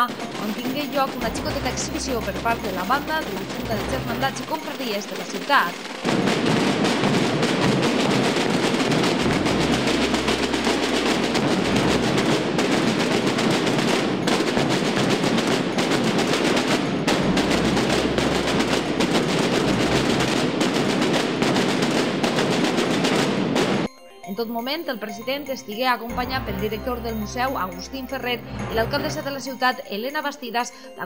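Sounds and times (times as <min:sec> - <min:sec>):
snare drum rolls: 0:00.0 - 0:23.9
bass drums: 0:01.2 - 0:04.5, 0:06.0 - 0:15.8, 0:17.0 - 0:21.1, 0:26.1 - 0:29.3.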